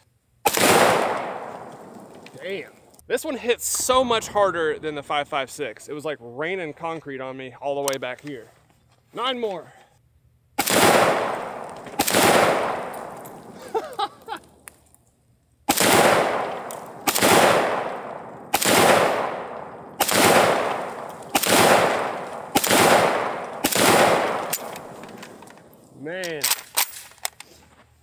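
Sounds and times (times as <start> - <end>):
rifle shots with echo: 0.4 - 2.7, 10.6 - 13.7, 15.7 - 27.0.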